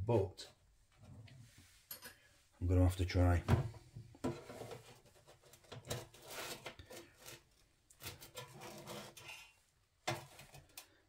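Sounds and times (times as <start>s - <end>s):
turner scraping metal basket: 4.4s - 9.6s.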